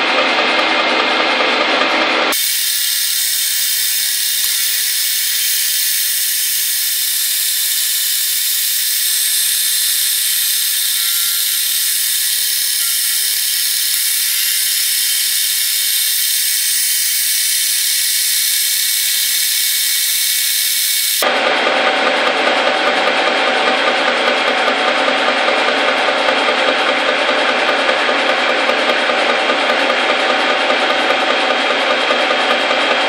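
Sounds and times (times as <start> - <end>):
milling machine cutting metal: 2.3 - 21.2.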